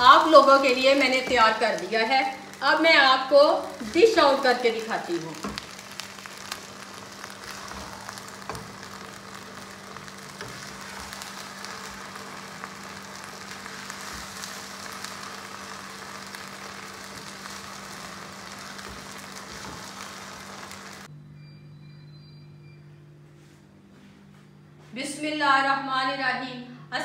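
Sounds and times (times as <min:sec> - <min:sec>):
greens sizzling in a hot wok: 0:00.0 - 0:21.1.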